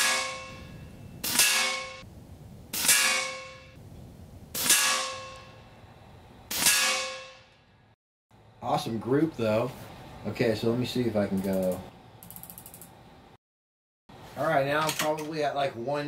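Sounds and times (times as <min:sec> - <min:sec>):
air rifle shots: 0:01.2 - 0:02.0, 0:02.7 - 0:03.7, 0:04.6 - 0:05.5, 0:06.5 - 0:07.4.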